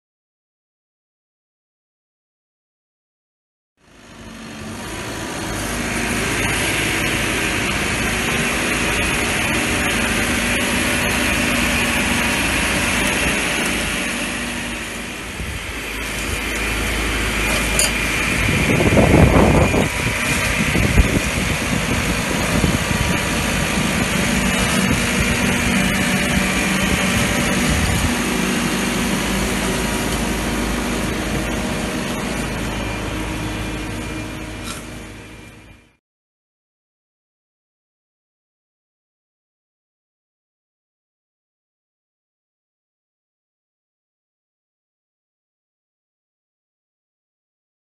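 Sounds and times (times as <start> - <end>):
machine engine with high whine: 3.8 - 36.0
low rumble: 6.7 - 35.9.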